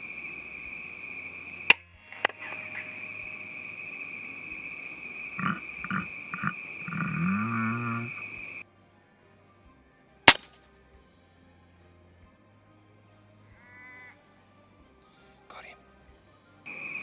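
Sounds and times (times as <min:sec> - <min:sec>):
crickets chirping: 0:00.0 - 0:17.0
short noisy bursts: 0:02.4 - 0:08.6
sharp loud crack: 0:10.3 - 0:10.5.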